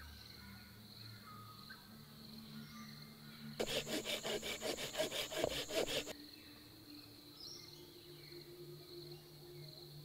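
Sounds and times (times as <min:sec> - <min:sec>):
rapid rhythmic rasping strokes: 0:03.6 - 0:06.1.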